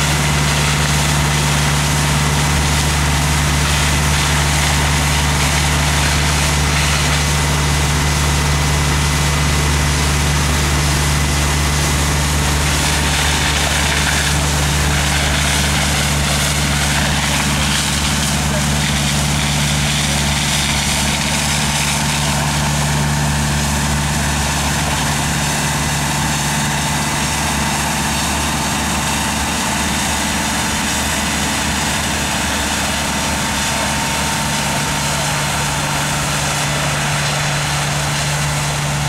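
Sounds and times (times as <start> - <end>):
engine hum: 0.0 - 39.0
foam spray hissing: 11.7 - 22.6.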